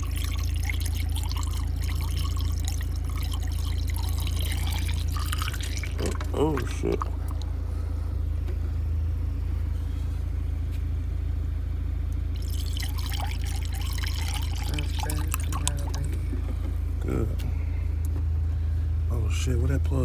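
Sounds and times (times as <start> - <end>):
liquid pouring and splashing: 0.0 - 7.5, 12.4 - 16.2
low hum: 0.0 - 20.0.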